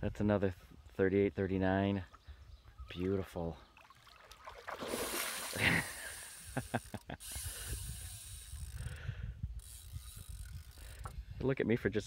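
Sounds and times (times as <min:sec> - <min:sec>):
fish splashing at surface: 0:03.9 - 0:05.6
fishing reel drag clicking: 0:05.0 - 0:11.2.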